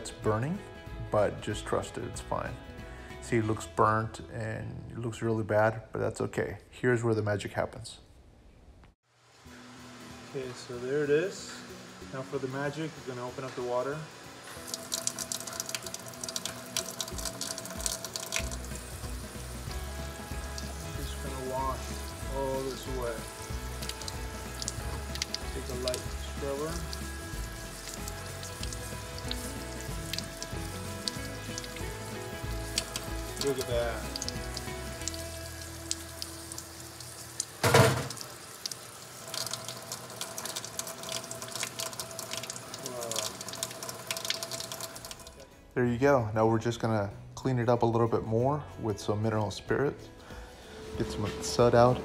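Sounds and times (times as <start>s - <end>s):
soft background music: 0.0s - 7.6s, 9.1s - 52.0s
tap water splashing into sink: 14.6s - 27.1s, 27.8s - 36.7s, 37.3s - 45.4s.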